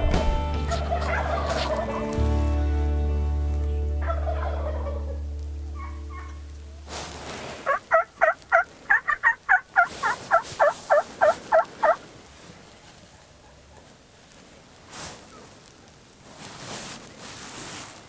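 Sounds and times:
held music tones: 0:00.0 - 0:07.6
turkey yelps: 0:00.7 - 0:02.2, 0:04.0 - 0:05.2, 0:05.8 - 0:06.4, 0:07.5 - 0:12.0.

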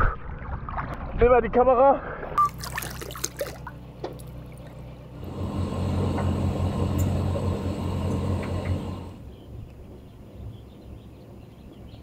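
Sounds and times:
boat engine humming: 0:02.4 - 0:10.5.

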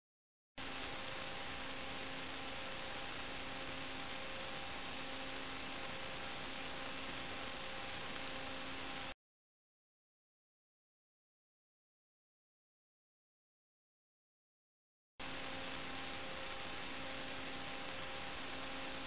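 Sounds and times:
electrical hum: 0:00.6 - 0:09.2, 0:15.2 - 0:19.0
static hiss: 0:00.6 - 0:09.2, 0:15.2 - 0:19.0.

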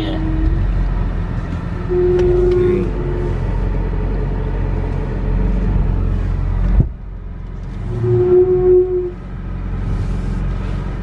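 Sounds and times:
car engine running at low revs: 0:00.0 - 0:11.0
steady tone: 0:01.7 - 0:06.7, 0:07.8 - 0:09.4.

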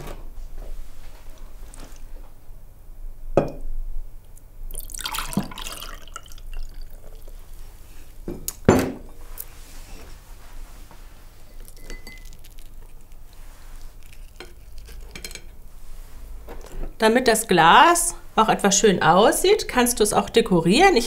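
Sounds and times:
lemonade pouring into a glass: 0:04.7 - 0:07.4.

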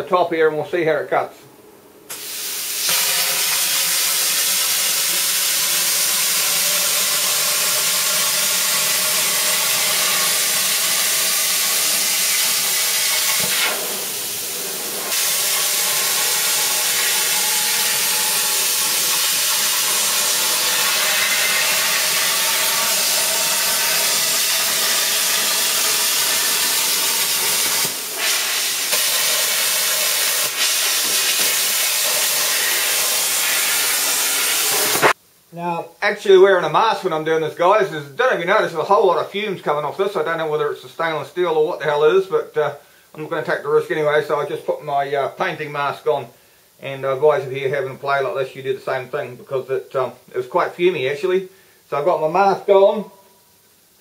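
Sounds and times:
plasma cutter hissing: 0:02.1 - 0:35.2.

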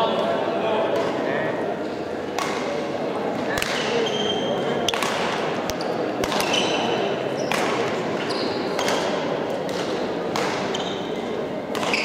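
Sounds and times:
racket hitting shuttlecock: 0:02.3 - 0:02.8, 0:03.4 - 0:04.0, 0:04.9 - 0:06.9, 0:07.5 - 0:08.0, 0:08.7 - 0:12.0
shoe squeaks on court floor: 0:03.9 - 0:04.7, 0:06.4 - 0:09.0, 0:10.6 - 0:11.2.

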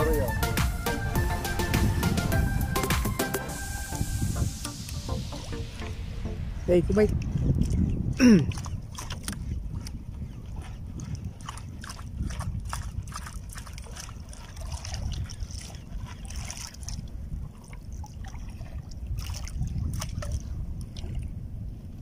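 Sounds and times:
water lapping against boat hull: 0:06.8 - 0:22.0
small splashes: 0:07.2 - 0:21.4.

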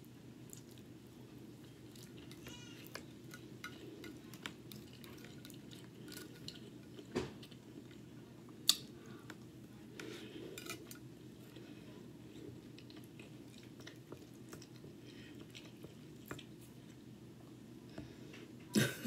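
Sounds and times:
soft chewing and mouth clicks: 0:00.4 - 0:18.5.

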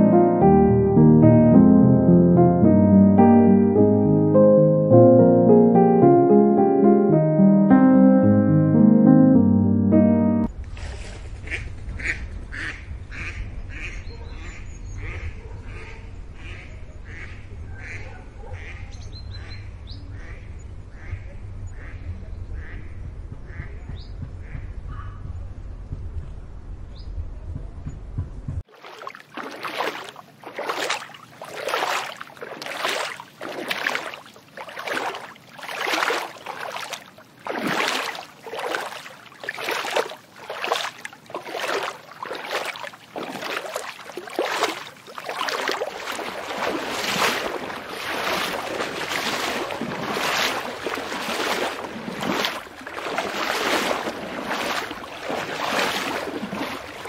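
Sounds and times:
fish thrashing and splashing water: 0:28.7 - 0:57.0.

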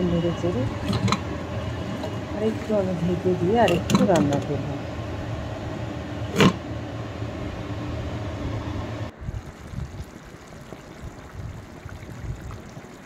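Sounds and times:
low rumble: 0:00.0 - 0:10.1
steady low hum: 0:00.0 - 0:10.2.

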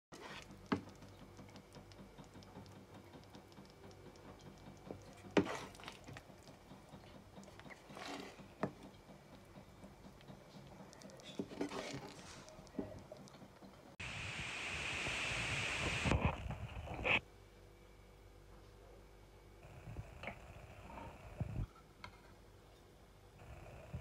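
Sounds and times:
wooden spoon scraping a pan: 0:05.4 - 0:06.0, 0:07.7 - 0:08.8, 0:11.3 - 0:12.6.

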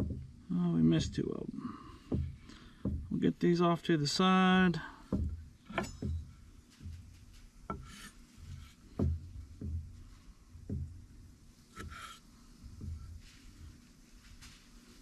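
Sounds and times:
scraping on cutting board: 0:07.7 - 0:08.8.

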